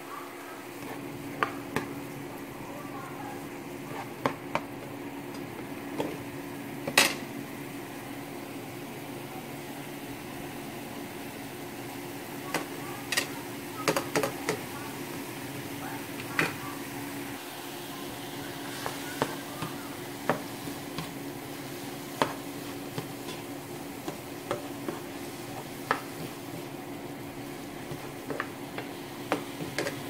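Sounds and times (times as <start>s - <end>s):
spoon stirring wet sauce: 0.7s - 2.5s, 18.1s - 30.0s.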